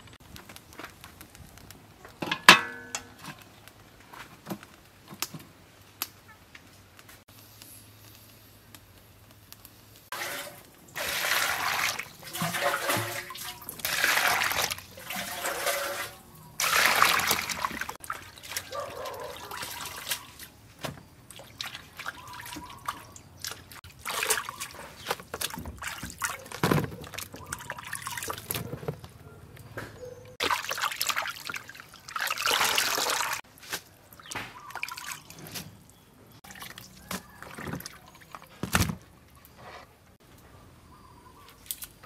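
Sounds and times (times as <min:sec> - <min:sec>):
water splashing and dripping: 0:10.1 - 0:28.7, 0:30.4 - 0:39.5, 0:41.5 - 0:42.0.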